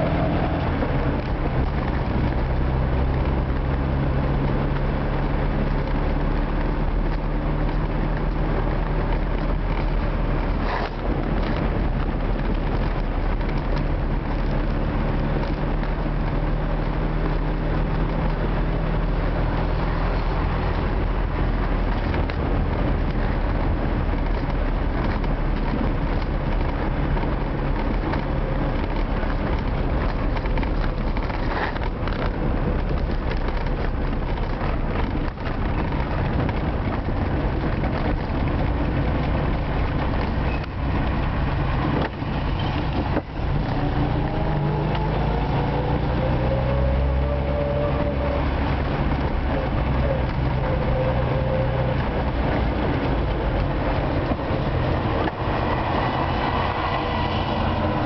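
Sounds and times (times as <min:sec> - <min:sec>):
car engine drone: 0:00.0 - 0:58.0
road and tyre noise: 0:00.0 - 0:58.0.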